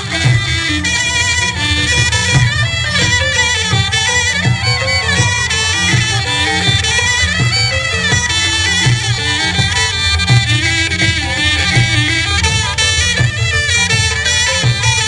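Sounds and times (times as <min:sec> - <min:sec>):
shrill reedy wind instrument: 0:00.0 - 0:15.0
steady drum beat: 0:01.5 - 0:15.0.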